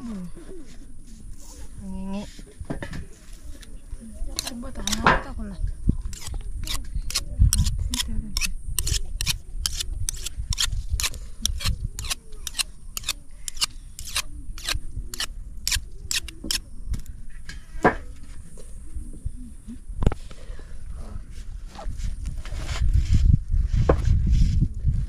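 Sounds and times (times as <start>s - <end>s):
knife scraping on sharpening stone: 4.4s - 5.1s, 6.1s - 16.6s.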